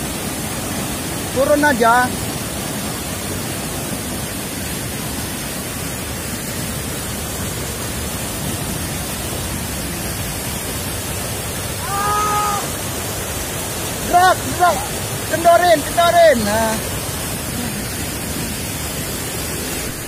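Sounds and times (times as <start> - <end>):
river rapids rushing: 0.0 - 20.0
person calling out: 11.8 - 12.8, 14.0 - 16.8.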